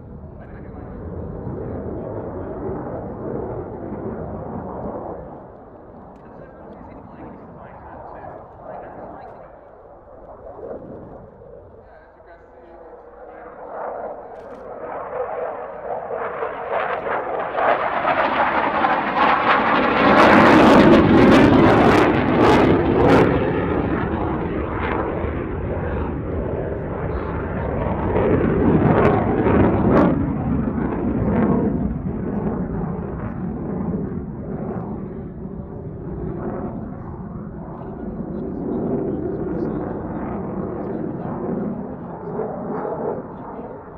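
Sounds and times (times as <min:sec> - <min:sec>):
jet engine roar: 0:00.0 - 0:43.9
sharp crackles: 0:14.2 - 0:14.8.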